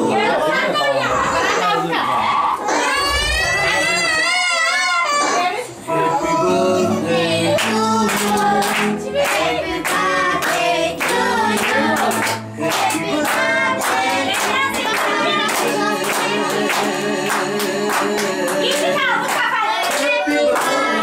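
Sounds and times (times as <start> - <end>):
person singing over music: 5.8 - 21.0
hands clapping along: 7.6 - 21.0.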